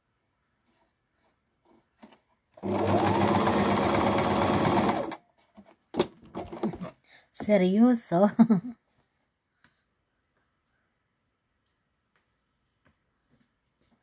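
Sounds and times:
sewing machine stitching: 0:02.6 - 0:05.2.

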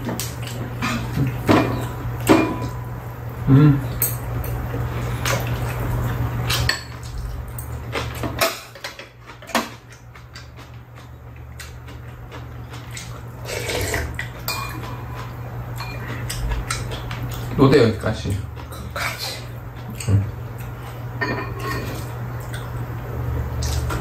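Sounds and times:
cutlery clinking on ceramic bowls: 0:13.8 - 0:16.3, 0:21.2 - 0:22.1.

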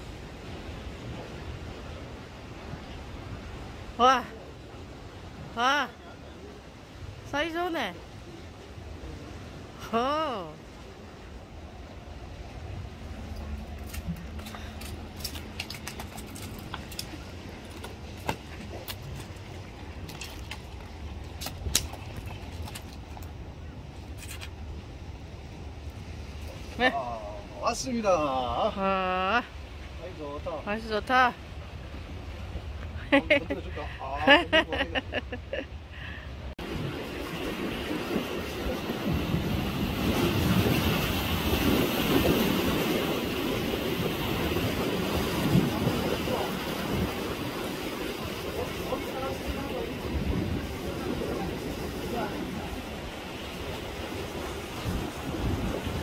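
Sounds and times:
sea surf: 0:00.0 - 0:56.0
steady low rumble: 0:10.6 - 0:26.7
fish flopping on concrete: 0:13.8 - 0:23.3
wind buffeting microphone: 0:36.3 - 0:56.0.

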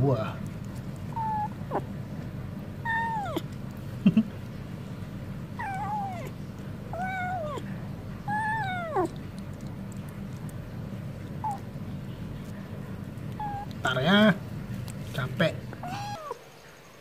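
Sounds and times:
cat meowing: 0:01.1 - 0:01.9, 0:02.8 - 0:03.6, 0:05.6 - 0:09.3, 0:11.3 - 0:11.8, 0:13.3 - 0:14.0, 0:15.7 - 0:16.4.

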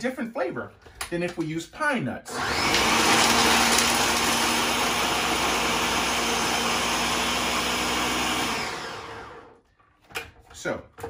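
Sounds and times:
food processor motor running: 0:02.3 - 0:09.6.

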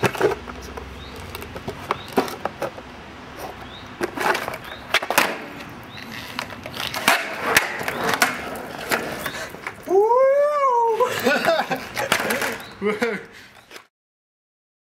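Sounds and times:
skateboard deck clacking: 0:00.0 - 0:02.8, 0:03.4 - 0:09.9, 0:11.2 - 0:12.7
skateboard wheels rolling on concrete: 0:00.0 - 0:13.9.

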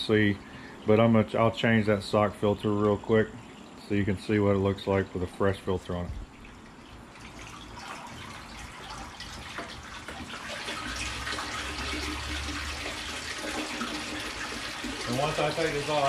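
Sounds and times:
water pouring into tank: 0:05.2 - 0:16.0.

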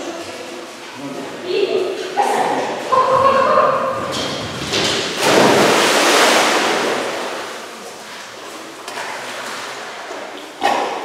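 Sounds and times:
water sloshing: 0:02.7 - 0:11.0
dog splashing into water: 0:04.6 - 0:07.6.

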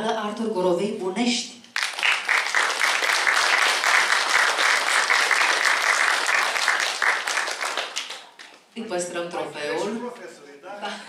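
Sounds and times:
audience applauding: 0:01.8 - 0:08.6.

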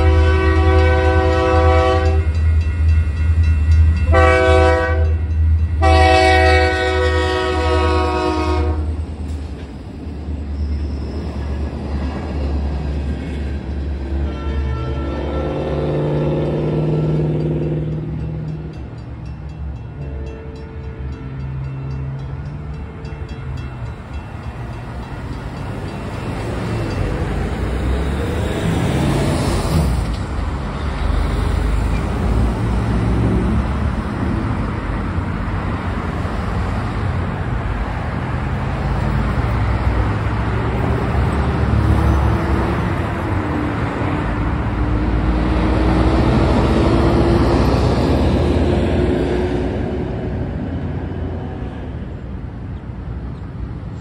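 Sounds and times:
cars and trucks passing: 0:00.0 - 0:54.0.

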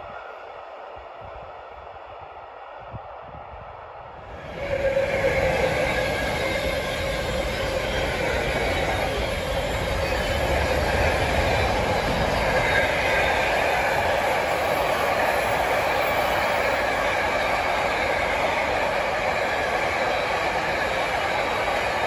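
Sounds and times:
train wheels rumbling on rail: 0:04.1 - 0:22.0
high wheel squeal: 0:04.5 - 0:21.0.

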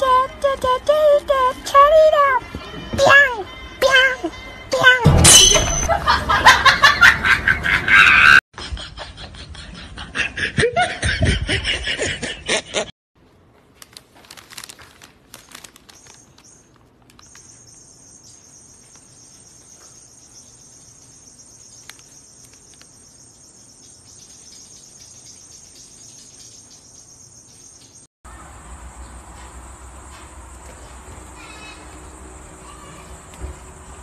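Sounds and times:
loud laughter: 0:05.9 - 0:12.9.

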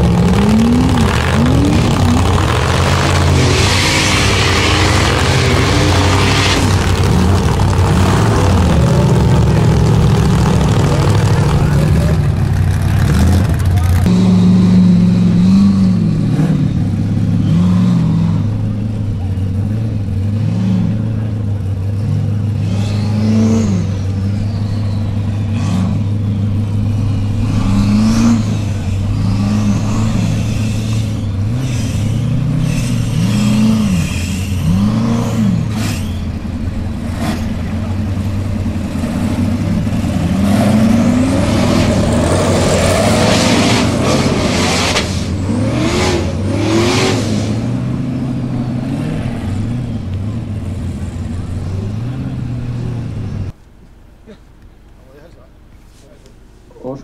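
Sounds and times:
car engine revving: 0:00.0 - 0:53.6
rush of noise with sharp cracks: 0:38.7 - 0:47.9.

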